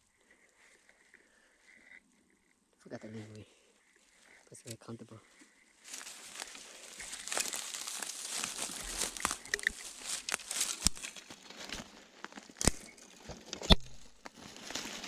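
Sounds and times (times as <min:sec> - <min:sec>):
footsteps crunching through dry leaves: 0:05.8 - 0:12.9, 0:14.2 - 0:15.0
brush crackling against clothing: 0:05.8 - 0:13.0
twig snapping: 0:05.9 - 0:15.0.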